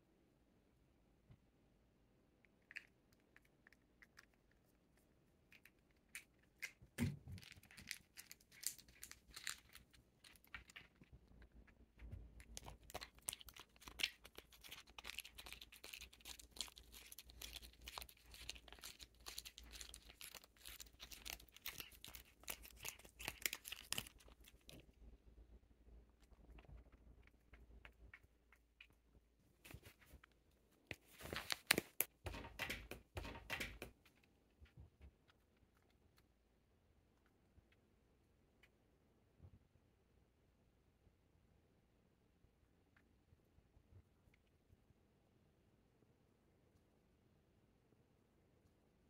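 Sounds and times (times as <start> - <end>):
plastic pouch crinkling: 6.1 - 11.1, 12.4 - 24.8, 30.9 - 33.8.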